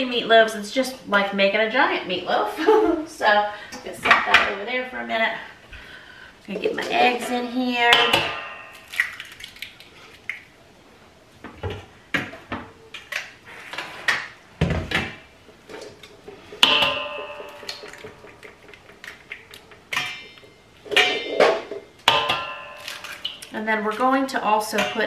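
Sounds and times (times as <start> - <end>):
metal bowl ringing: 7.8 - 8.9, 16.6 - 18.5, 22.1 - 23.4
eggs cracked on metal bowl: 7.9 - 10.5, 16.6 - 24.0.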